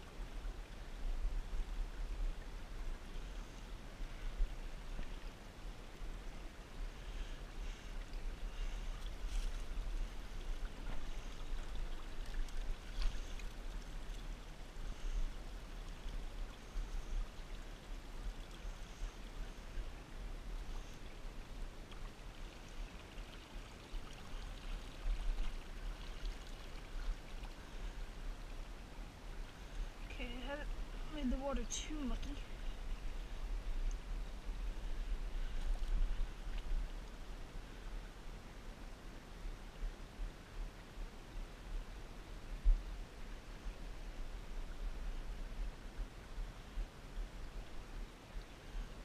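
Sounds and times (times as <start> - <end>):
creek trickling: 0.0 - 38.3.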